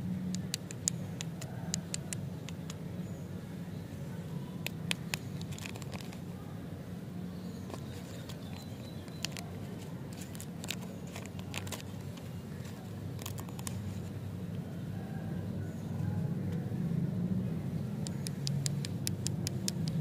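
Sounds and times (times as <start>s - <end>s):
wrapper crinkling: 7.7s - 13.9s.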